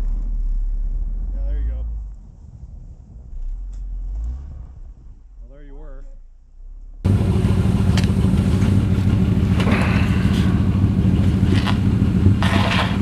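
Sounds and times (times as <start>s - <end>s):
car engine running slowly: 0.0s - 13.0s
tyres crunching on gravel: 7.9s - 13.0s.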